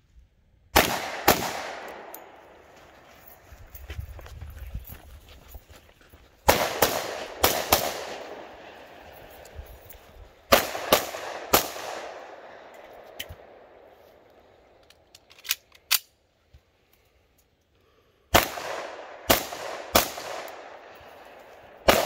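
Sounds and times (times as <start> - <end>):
pistol shots with echo: 0.7 - 2.6, 6.5 - 9.4, 10.5 - 13.8, 18.3 - 22.0.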